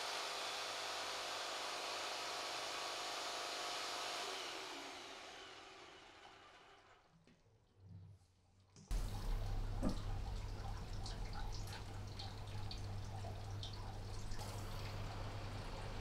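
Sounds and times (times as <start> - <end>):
jigsaw motor winding down: 0.0 - 7.0
low steady hum: 8.9 - 16.0.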